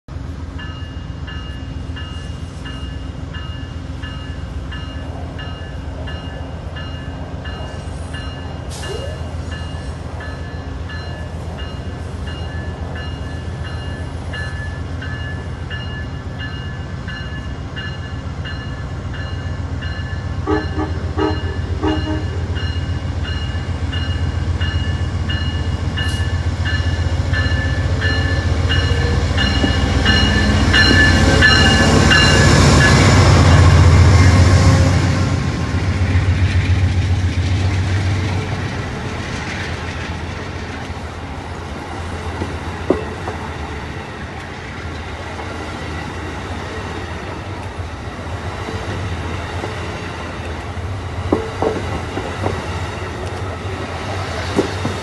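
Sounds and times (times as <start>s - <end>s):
diesel locomotive rumbling: 0.1s - 55.0s
locomotive bell ringing: 0.5s - 33.8s
short horn blasts: 20.5s - 22.4s.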